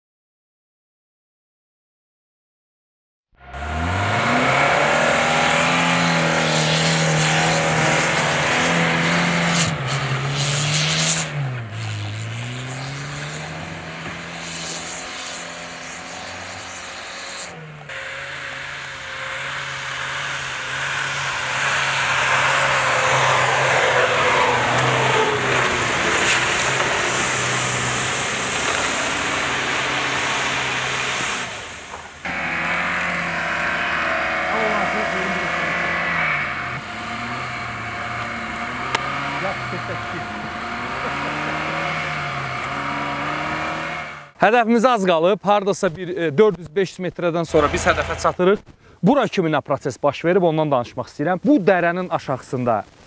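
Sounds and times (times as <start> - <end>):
engines running under load: 3.4 - 44.4, 47.5 - 48.5
tyres churning through snow: 3.4 - 44.4, 47.1 - 48.6.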